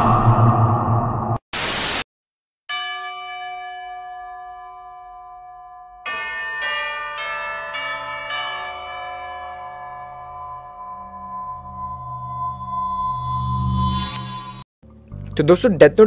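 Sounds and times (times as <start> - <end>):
bell chimes ringing: 2.7 - 12.9.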